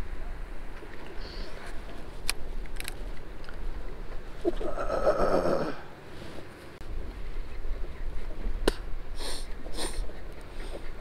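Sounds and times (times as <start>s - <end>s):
quick sniffs: 9.2s - 10.9s.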